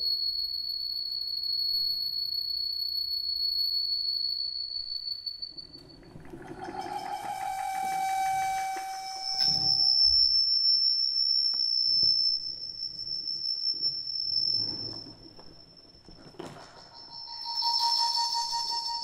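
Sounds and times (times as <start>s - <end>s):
high feedback tone: 5.4s - 19.0s
mid-pitched feedback tone: 5.6s - 10.5s, 16.7s - 19.0s.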